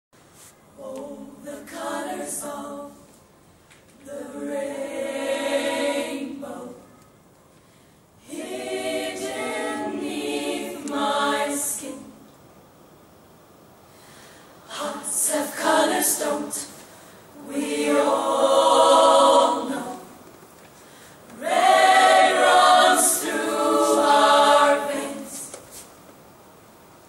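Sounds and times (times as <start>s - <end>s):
women's choir singing a cappella: 0.7s - 3.2s, 4.0s - 7.0s, 8.2s - 12.3s, 14.6s - 20.2s, 21.3s - 25.8s.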